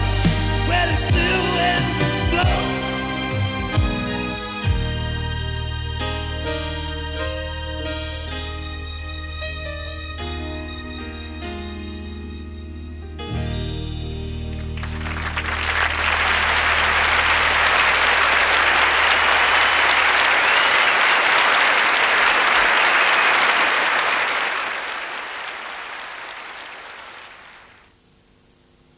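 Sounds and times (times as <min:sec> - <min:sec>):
audience applauding: 0:14.7 - 0:27.9.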